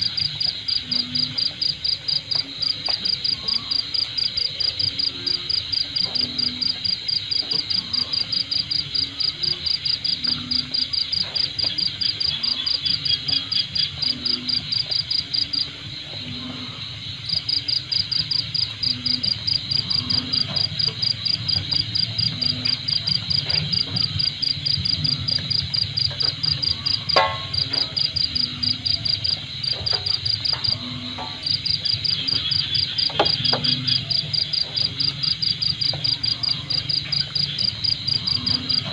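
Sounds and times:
insects chirping: 0.0 - 38.9.

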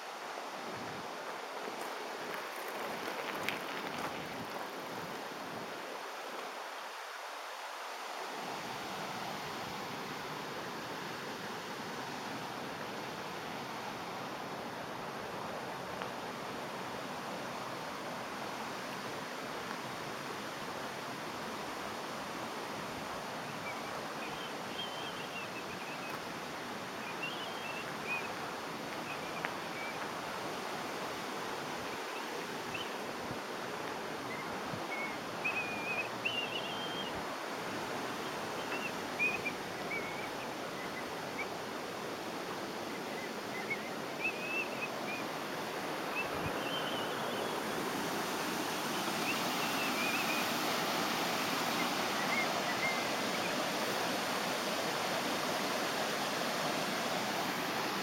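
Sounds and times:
river water pouring over weir: 0.0 - 58.0
birds chirping: 27.0 - 28.4, 34.3 - 37.2, 38.0 - 41.5, 46.0 - 47.8.

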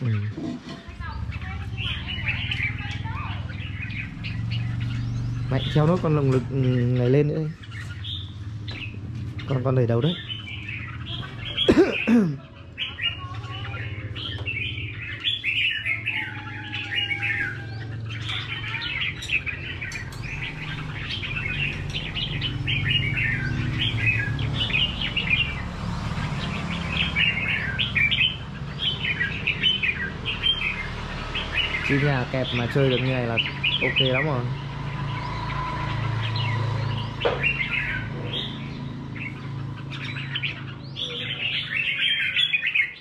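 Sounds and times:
birds singing chirping phrases: 0.0 - 43.0.

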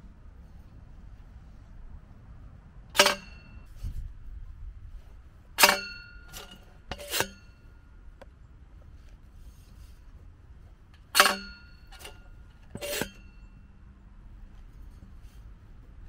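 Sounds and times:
metal tool clanking: 3.0 - 3.7, 5.6 - 7.7, 11.0 - 13.6.

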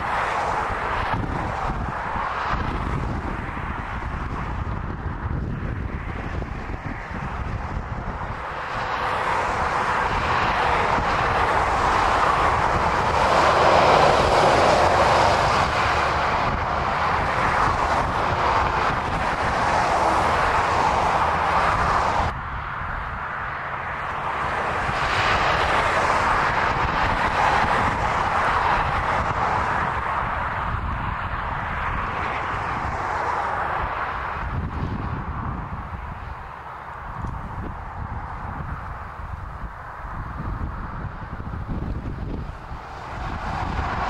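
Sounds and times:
road traffic passing: 0.0 - 44.0.

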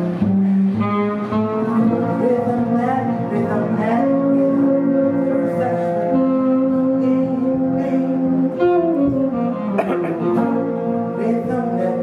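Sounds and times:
jazz band playing: 0.0 - 12.0.

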